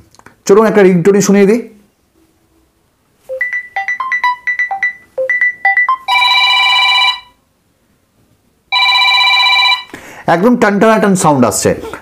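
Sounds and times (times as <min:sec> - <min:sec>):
phone ringtone melody: 0:03.3 - 0:07.4, 0:08.7 - 0:09.9.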